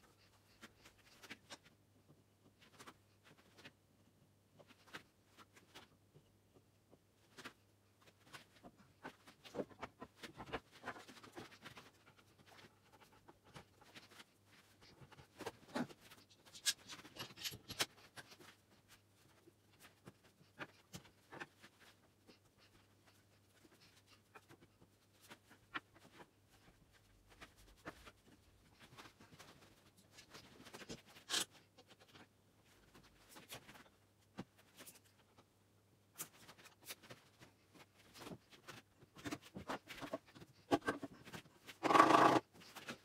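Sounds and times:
wood and metal knocks and scrapes: 0:41.8 - 0:42.4.

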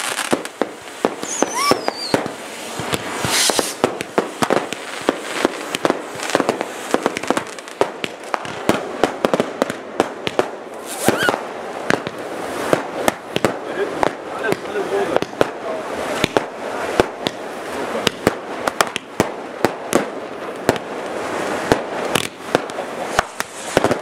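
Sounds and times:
firecracker bangs: 0:00.0 - 0:24.0
fountain firework hissing: 0:00.0 - 0:24.0
falling firework whistle: 0:01.1 - 0:03.9, 0:10.8 - 0:11.4.

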